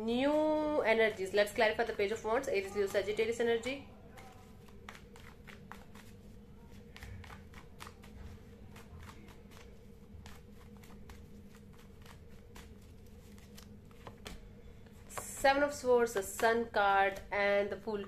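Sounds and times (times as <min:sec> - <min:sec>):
faint steady hum: 0:00.0 - 0:18.0
cards being shuffled: 0:04.1 - 0:15.5.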